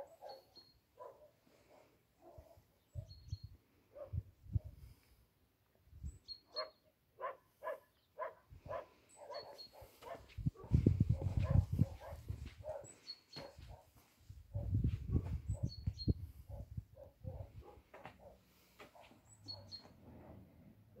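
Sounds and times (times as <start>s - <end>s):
dog barking: 0.0s - 2.7s, 3.9s - 4.7s, 6.5s - 15.7s, 16.5s - 19.8s.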